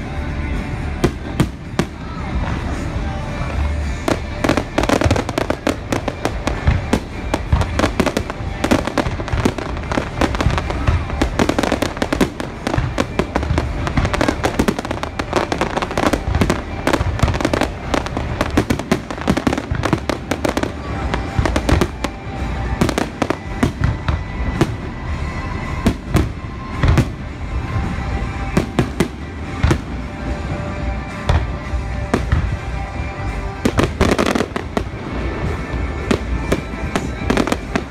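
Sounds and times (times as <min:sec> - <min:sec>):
fireworks booming: 0:03.8 - 0:37.9
fireworks crackling pops: 0:03.9 - 0:24.8.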